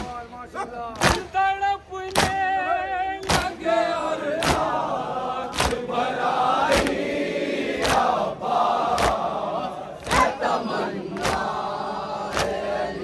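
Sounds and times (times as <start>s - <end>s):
sharp rhythmic beat: 0.0s - 7.1s
lead voice singing: 1.2s - 13.0s
crowd chanting in unison: 2.3s - 13.0s.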